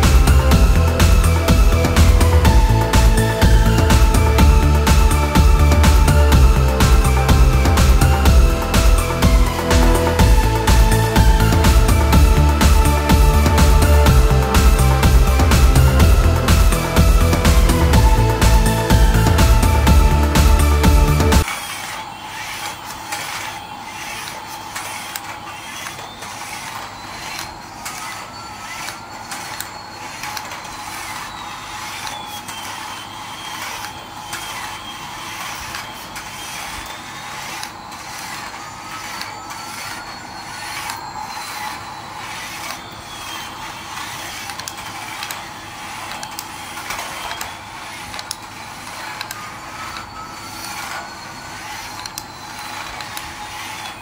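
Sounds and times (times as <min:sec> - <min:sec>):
faint whine: 0:00.0 - 0:54.0
steady tone: 0:00.0 - 0:54.0
toy motor clicking rattle: 0:21.4 - 0:54.0.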